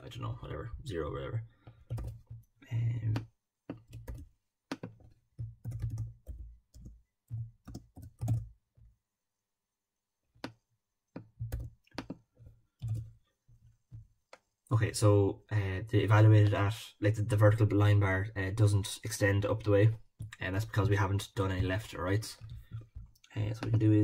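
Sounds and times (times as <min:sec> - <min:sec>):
keyboard typing: 0:01.6 - 0:02.5, 0:03.1 - 0:08.6, 0:10.4 - 0:13.3.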